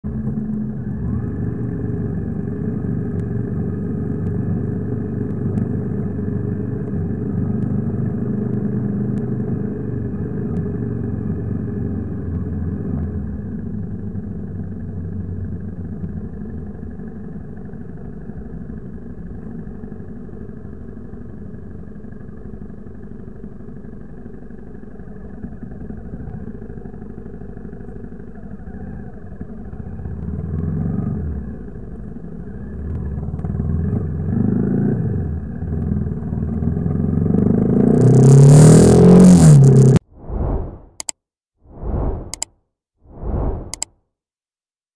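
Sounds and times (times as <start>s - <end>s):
motorcycle engine running: 0.1s - 37.7s.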